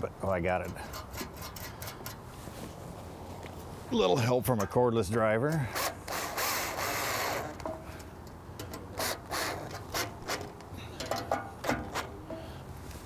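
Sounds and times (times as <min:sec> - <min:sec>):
cordless drill spinning a nut: 0:05.8 - 0:07.6.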